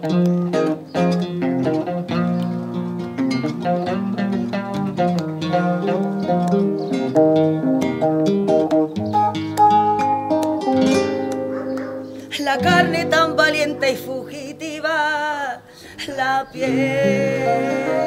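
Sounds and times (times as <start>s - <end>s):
acoustic guitar plucked: 0.0s - 18.0s
person singing with vibrato: 12.2s - 18.0s.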